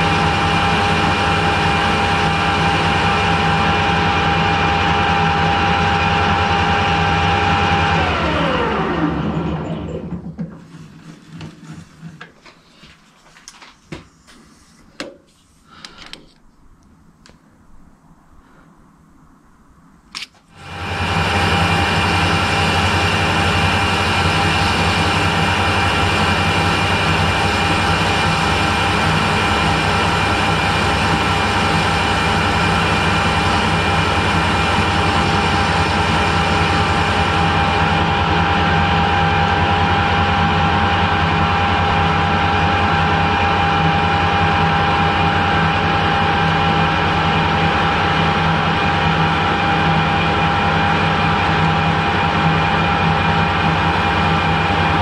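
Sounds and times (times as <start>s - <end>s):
metal lathe humming: 20.6s - 55.0s.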